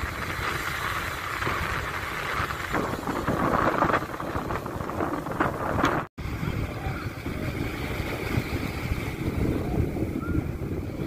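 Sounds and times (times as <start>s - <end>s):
waves breaking on a beach: 0.0s - 11.0s
wind on microphone: 0.0s - 11.0s.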